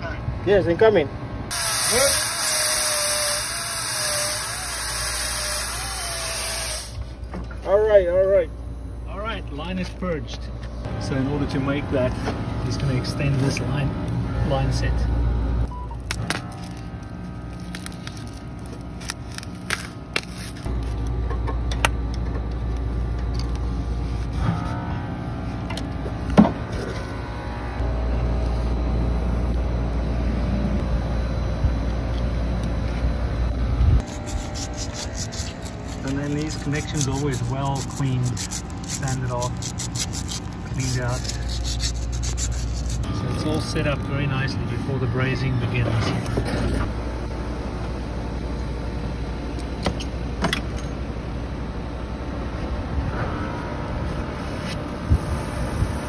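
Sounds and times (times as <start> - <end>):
faint machine hum: 0.0 - 56.0
low rumble: 51.0 - 56.0
rushing wind-like noise: 52.8 - 56.0.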